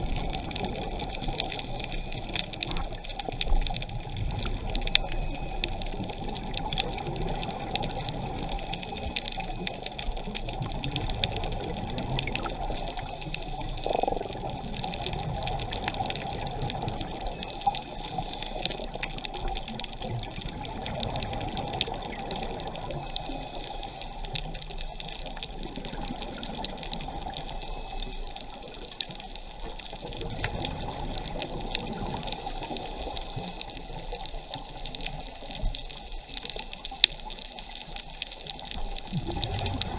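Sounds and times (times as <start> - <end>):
underwater water rush: 0.0 - 39.9
diver's exhaled bubbles: 39.1 - 39.9.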